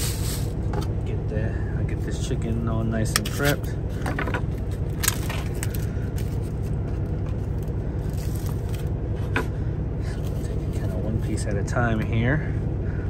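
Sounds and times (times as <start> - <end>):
truck engine idling hum: 0.0 - 13.0
sharp plastic crackles: 4.6 - 6.7.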